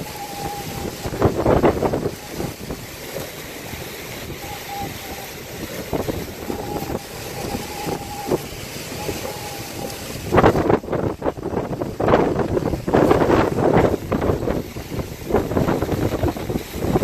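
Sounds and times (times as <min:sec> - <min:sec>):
thin whistling tone: 0:00.0 - 0:02.6, 0:04.2 - 0:10.4
driving rain: 0:00.0 - 0:17.0
wind gusting on microphone: 0:00.0 - 0:17.0.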